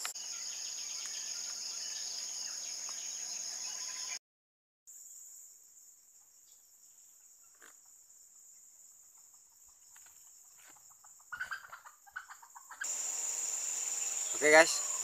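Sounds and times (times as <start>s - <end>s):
insects droning: 0.0s - 4.2s, 4.9s - 15.0s
jungle fowl clucking: 10.6s - 12.9s.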